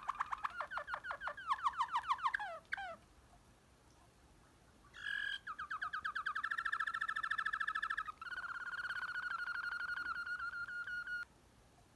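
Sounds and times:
canary singing trills: 0.0s - 3.0s, 4.9s - 11.3s.

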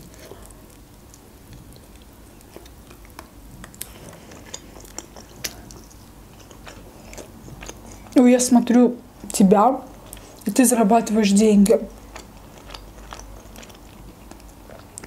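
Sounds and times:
person chewing: 0.0s - 8.2s, 11.9s - 15.0s.

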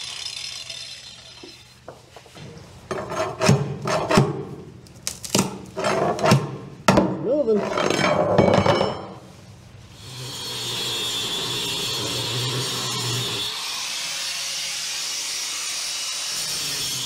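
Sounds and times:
angle grinder grinding: 0.0s - 2.1s, 9.9s - 17.0s.

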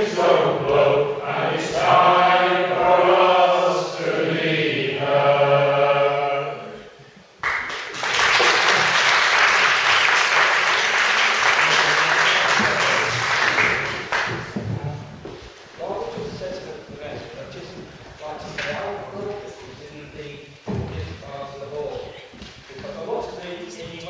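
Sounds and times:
male choir singing unaccompanied: 0.0s - 6.9s
audience applause: 7.4s - 14.6s.

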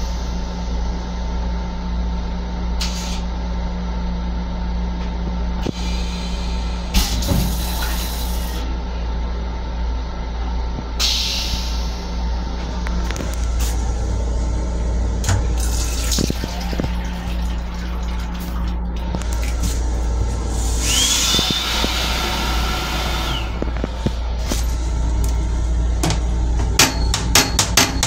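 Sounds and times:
railcar rumble and hum: 0.0s - 28.0s
toilet flushing: 13.8s - 23.7s.

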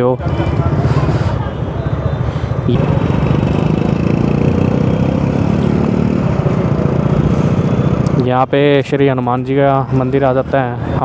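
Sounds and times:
motorcycle engine running: 0.2s - 8.9s.

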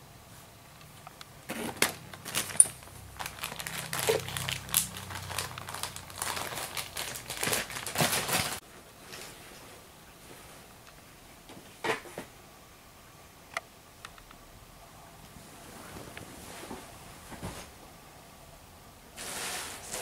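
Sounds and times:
crinkling and rustling: 0.8s - 10.8s, 19.2s - 20.0s.

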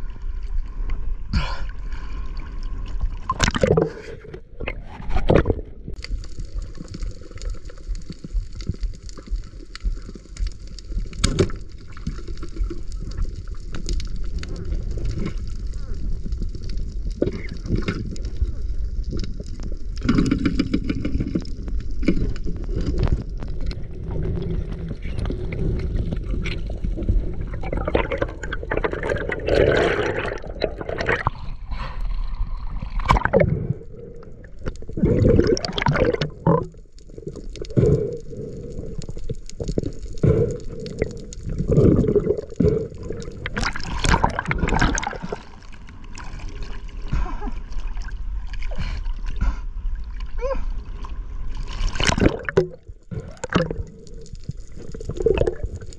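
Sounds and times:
water gurgling and rushing: 1.3s - 31.7s, 32.4s - 55.9s.

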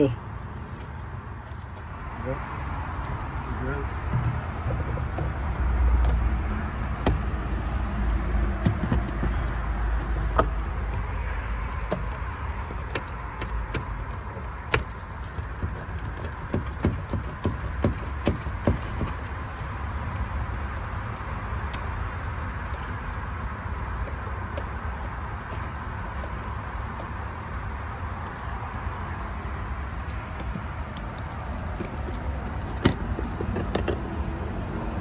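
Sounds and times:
plastic and metal clicks and knocks: 8.6s - 11.0s, 11.8s - 19.4s, 30.0s - 34.0s.

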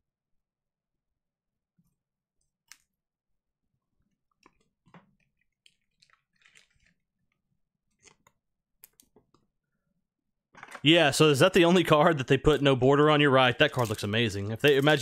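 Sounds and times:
cards clicking and rustling: 13.6s - 15.0s.

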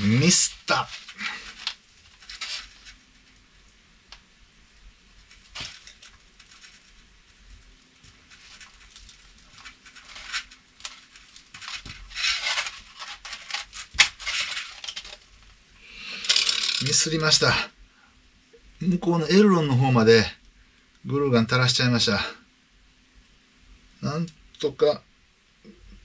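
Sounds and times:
foam rustling: 0.0s - 3.4s, 5.0s - 15.3s.

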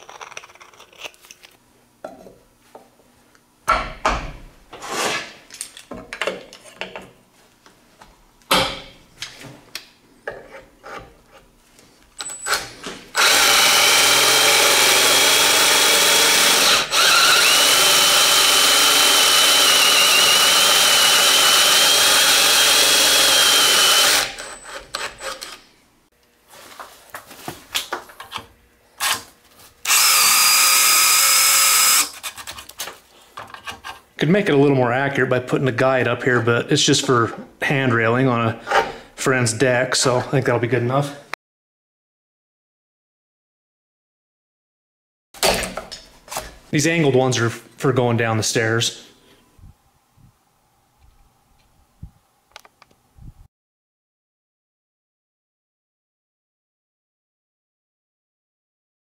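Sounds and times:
power drill whining: 12.2s - 25.6s, 29.8s - 32.2s.

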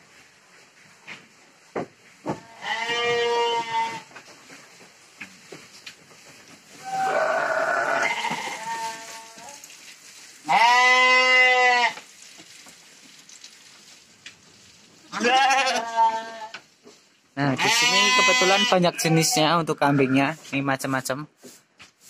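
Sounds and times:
sheep bleating: 2.4s - 4.1s, 6.8s - 9.6s, 10.5s - 12.0s, 15.1s - 16.6s, 17.5s - 20.2s.

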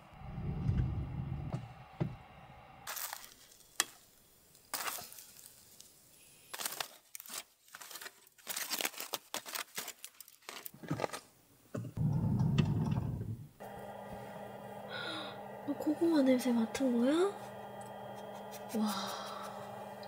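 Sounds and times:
low rumble: 0.0s - 2.9s, 12.0s - 20.0s
aluminium foil crinkling: 2.9s - 11.3s.

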